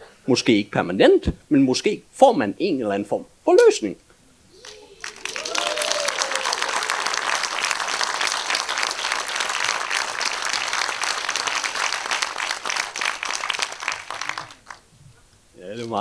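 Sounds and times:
audience cheering: 4.5s - 14.8s
audience applauding: 4.6s - 14.9s.

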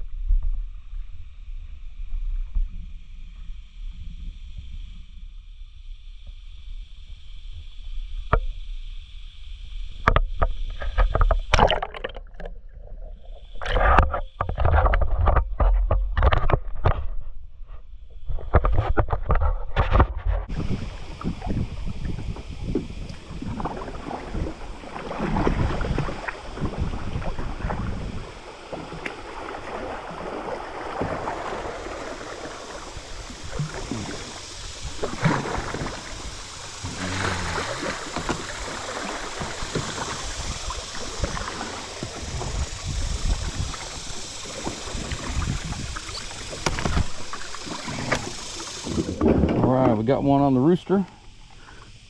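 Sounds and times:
water splashes: 10.0s - 15.4s, 20.4s - 52.0s
river water rushing: 23.2s - 49.3s.

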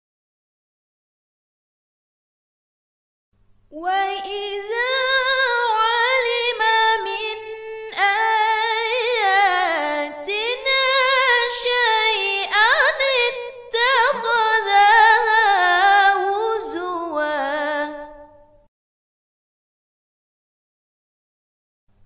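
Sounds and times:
woman reciting melodically: 3.7s - 18.4s.

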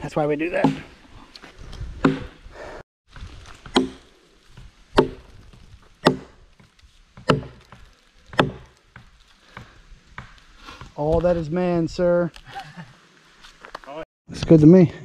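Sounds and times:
axe chopping log with ringing: 3.7s - 4.1s, 5.0s - 5.2s, 6.0s - 6.4s, 7.2s - 7.7s, 8.3s - 8.7s.

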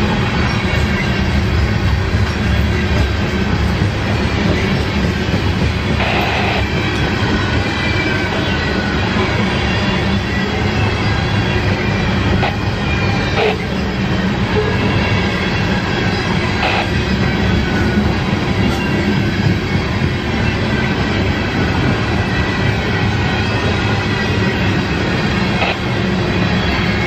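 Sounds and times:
train wheels rumbling on rails: 0.0s - 27.0s
wheel screeches: 4.4s - 14.2s.

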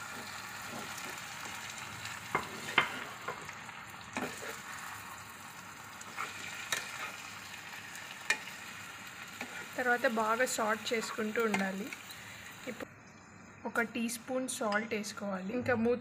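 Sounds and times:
tomatoes sizzling in oil: 0.0s - 12.9s
spatula scraping a pan: 2.3s - 3.4s, 4.2s - 4.7s, 6.1s - 7.3s.

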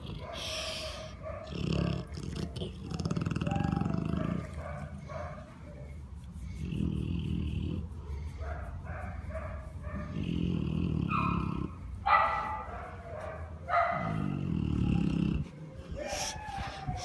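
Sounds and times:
dog rumbling vocally: 0.0s - 17.0s.

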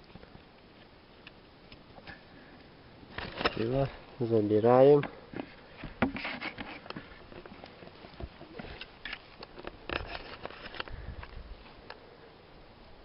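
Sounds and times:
handling clicks and rustles: 3.1s - 12.0s.

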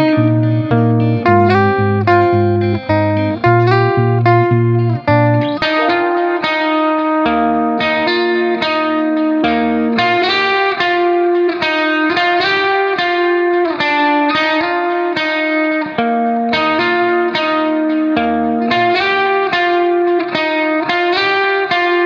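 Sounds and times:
guitar playing plucked melody: 0.0s - 22.0s
effects sound: 1.3s - 6.5s.

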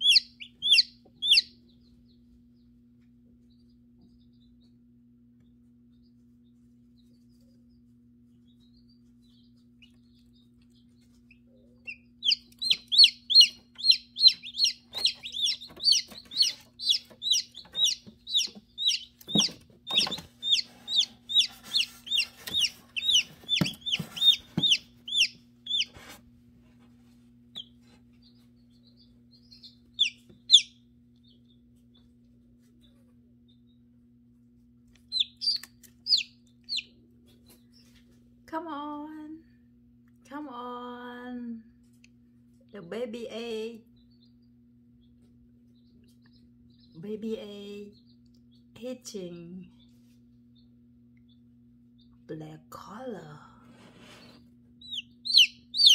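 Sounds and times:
chick peeping: 0.0s - 26.2s, 27.5s - 33.9s, 34.9s - 38.1s, 53.6s - 55.9s
incubator low hum: 0.0s - 55.9s.

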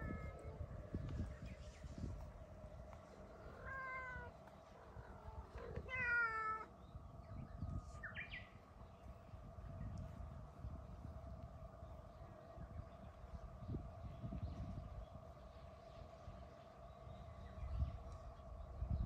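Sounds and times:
cat meowing: 5.6s - 6.7s.

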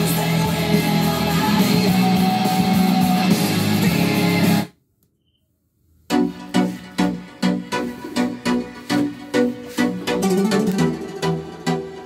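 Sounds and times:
guitar music through speaker: 9.4s - 12.0s.

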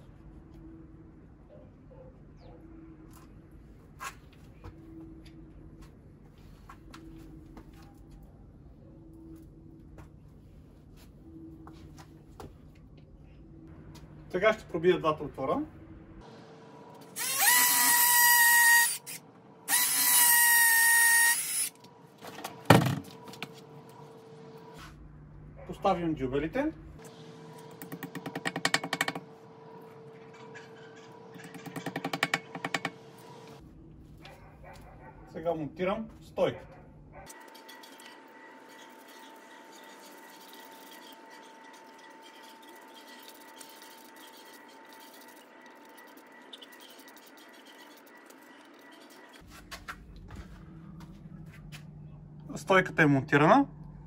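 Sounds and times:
cordless drill whining: 17.2s - 21.7s.

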